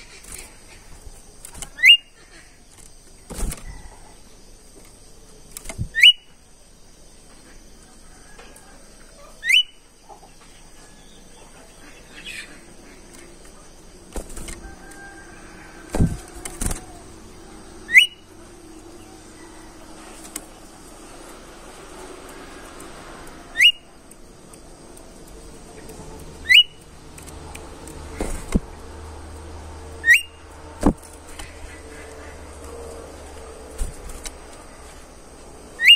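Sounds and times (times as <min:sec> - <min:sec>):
wing flutters: 0:00.0 - 0:04.2, 0:12.4 - 0:35.9
songbird whistled notes: 0:01.7 - 0:02.1, 0:05.8 - 0:06.3, 0:09.4 - 0:09.8, 0:17.8 - 0:18.3, 0:23.5 - 0:23.9, 0:26.4 - 0:26.8, 0:30.0 - 0:30.4
bird thumps in cage: 0:15.9 - 0:16.8, 0:30.8 - 0:31.5.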